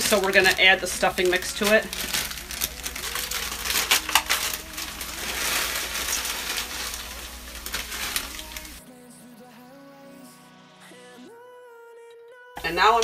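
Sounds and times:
bag crinkling: 0:00.0 - 0:08.8
dry cubes rattling into a pan: 0:00.0 - 0:08.8.

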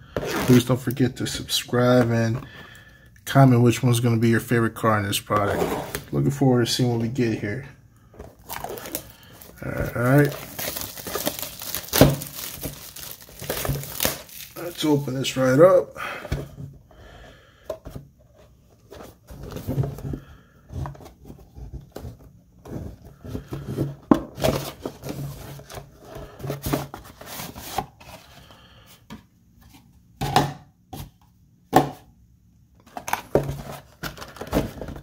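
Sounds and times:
cardboard box scraping and rustling: 0:05.4 - 0:06.1.

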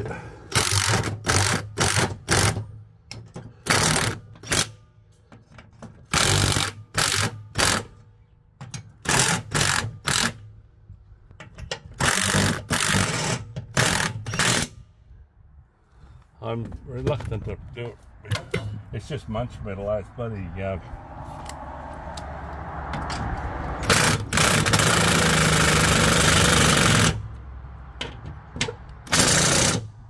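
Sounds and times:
impact driver bursts: 0:00.5 - 0:02.8, 0:03.6 - 0:04.8, 0:06.1 - 0:07.9, 0:12.0 - 0:14.8, 0:23.8 - 0:27.2, 0:29.0 - 0:29.9.

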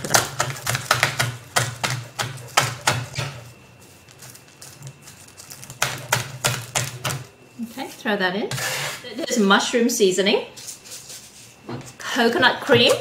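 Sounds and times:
knife chopping on wooden board: 0:00.1 - 0:03.4.

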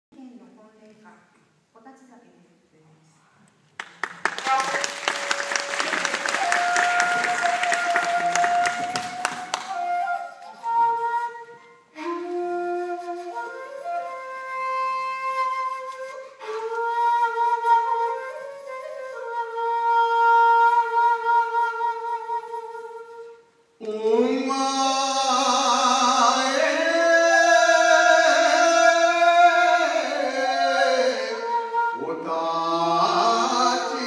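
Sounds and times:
audience applauding: 0:03.8 - 0:09.9
shakuhachi playing: 0:04.9 - 0:23.8, 0:27.1 - 0:34.0.

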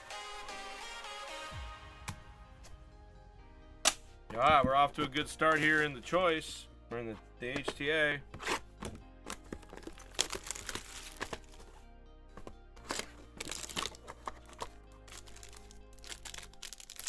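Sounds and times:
background music: 0:00.0 - 0:17.0
card pack wrappers crinkling: 0:09.3 - 0:11.8, 0:12.8 - 0:17.0.

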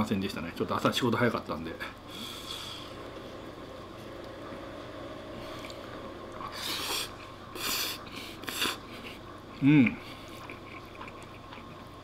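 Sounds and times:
low room noise: 0:00.0 - 0:12.0
man slurping spaghetti: 0:06.4 - 0:08.9.

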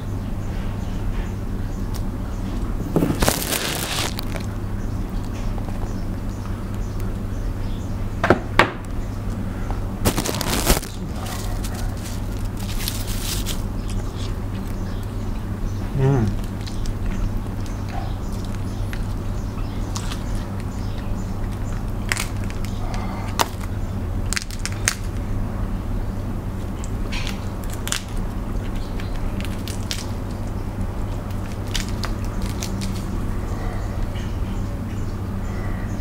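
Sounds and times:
steady low hum: 0:00.0 - 0:36.0
crab shells cracking: 0:03.0 - 0:04.6, 0:10.0 - 0:15.4, 0:16.3 - 0:25.2, 0:26.6 - 0:33.3
wet squishing and eating: 0:03.0 - 0:04.6, 0:10.0 - 0:15.6, 0:16.3 - 0:25.1, 0:26.6 - 0:34.2.

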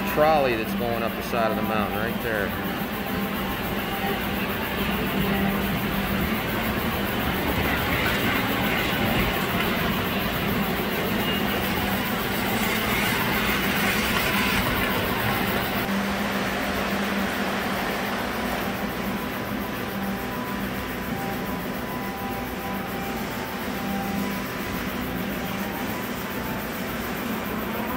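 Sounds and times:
model trains rolling rumble: 0:00.0 - 0:15.9
constant low hum: 0:00.0 - 0:27.9.

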